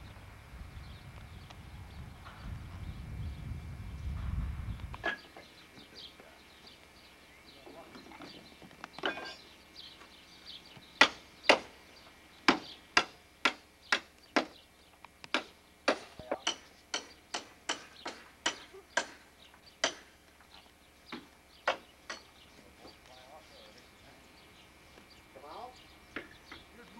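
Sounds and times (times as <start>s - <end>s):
hammer blows on wooden planks: 11.0s - 11.8s, 12.4s - 14.6s, 15.3s - 20.3s, 21.1s - 23.0s.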